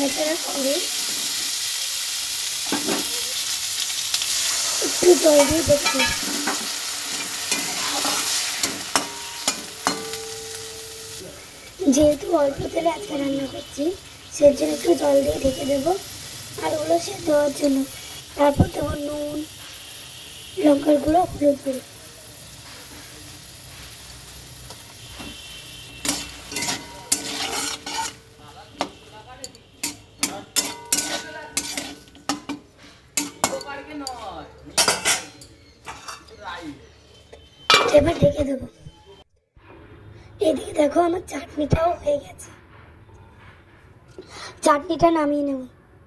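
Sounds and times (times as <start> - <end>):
water sizzling in hot oil: 0.0 - 33.6
spatula scraping metal pan: 5.0 - 11.8, 25.1 - 29.0, 29.8 - 33.7.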